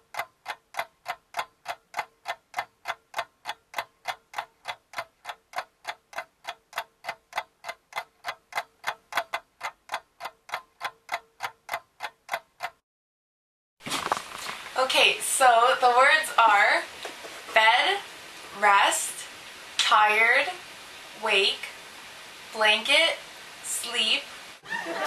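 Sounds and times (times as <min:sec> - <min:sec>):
clock ticking: 0:00.0 - 0:12.8.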